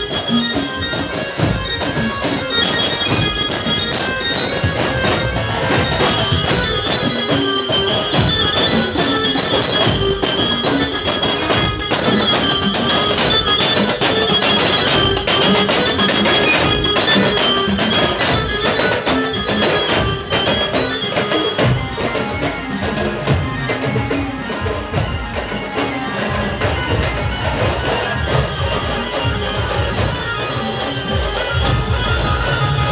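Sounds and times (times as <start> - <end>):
procession band playing: 0.0 - 32.9.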